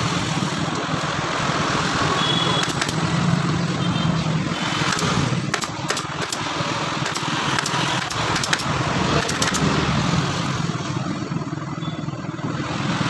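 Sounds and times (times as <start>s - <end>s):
staple gun firing: 2.6s - 3.0s, 4.8s - 6.4s, 7.0s - 9.7s.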